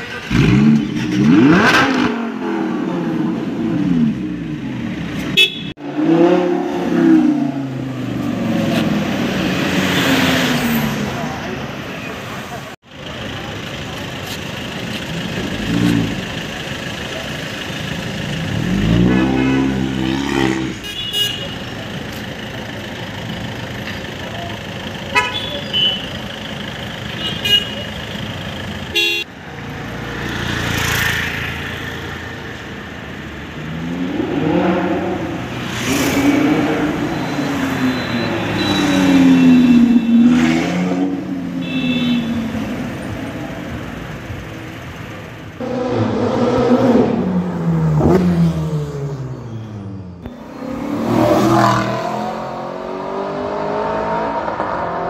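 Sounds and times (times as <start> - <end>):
car horn toots: 5.3 - 5.8, 25.1 - 26.1, 28.9 - 29.3, 41.6 - 42.5
car engines revving past: 18.4 - 20.8, 33.4 - 41.6, 45.6 - 49.4, 50.3 - 55.0.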